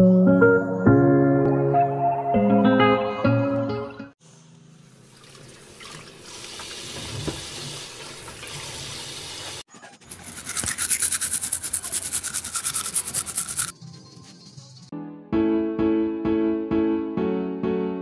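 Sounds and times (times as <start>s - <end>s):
tap water running into basin: 5.0s - 9.6s
roots rubbed and washed by hand: 5.1s - 13.8s
grating on metal hand grater: 10.0s - 13.7s.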